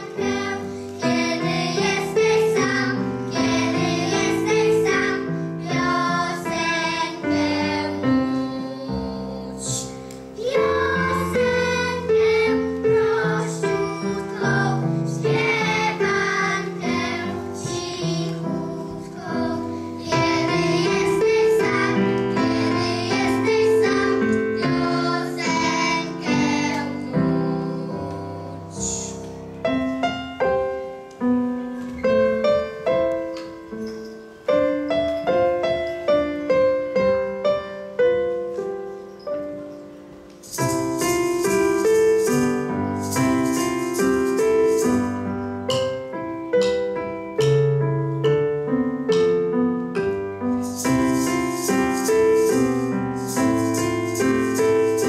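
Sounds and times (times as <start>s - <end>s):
maracas shaking: 0.0s - 5.2s, 9.6s - 29.3s, 40.2s - 46.1s, 50.4s - 55.0s
children singing: 0.0s - 29.2s, 50.7s - 55.0s
keyboard piano playing: 0.0s - 55.0s.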